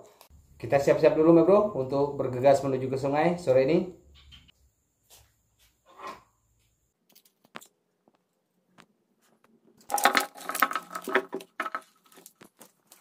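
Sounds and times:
plastic blister pack crinkling: 9.9 - 13.0.

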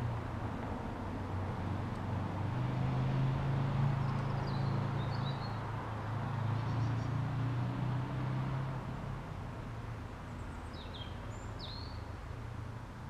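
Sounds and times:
small bird chirping: 10.6 - 12.0.

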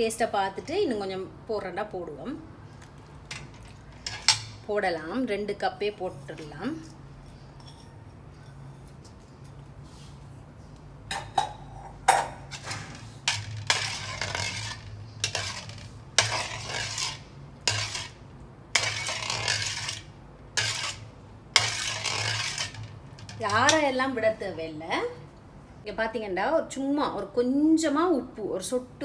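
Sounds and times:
spoon stirring and scraping pot: 3.3 - 4.6, 6.0 - 9.6, 11.5 - 23.9.

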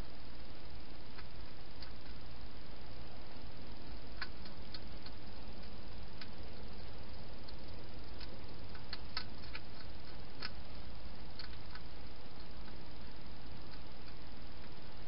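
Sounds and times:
steady hiss: 0.0 - 15.0
hedgehog chewing: 0.9 - 15.0.

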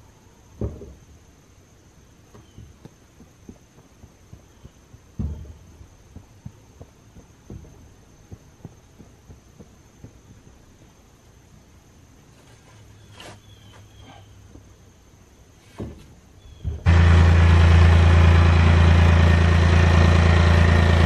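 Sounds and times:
heavy shovel thump: 0.6 - 1.0, 5.2 - 5.8, 15.6 - 17.3
shovel thudding and scraping dirt: 4.5 - 6.6, 12.3 - 14.3, 15.6 - 16.9.

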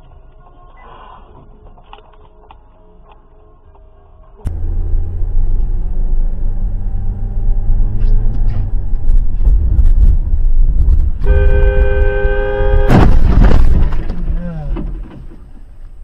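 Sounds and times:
car engine and tyres rumbling: 2.2 - 16.0
vehicle horn blaring: 11.2 - 13.2.

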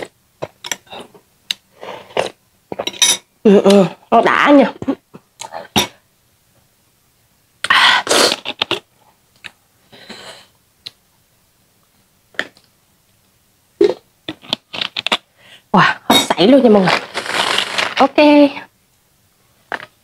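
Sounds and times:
mouth clicks and smacks: 7.6 - 9.6.

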